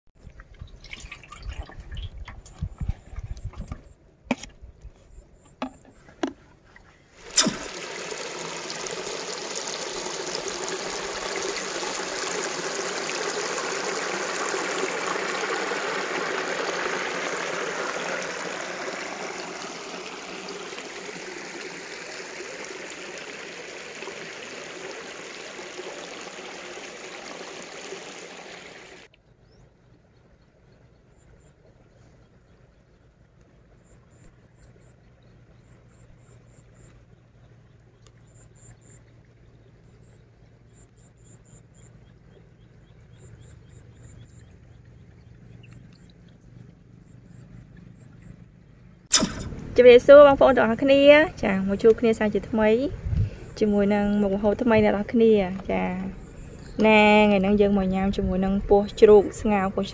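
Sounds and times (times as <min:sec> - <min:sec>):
water rushing over a drop: 0:07.2 - 0:29.1.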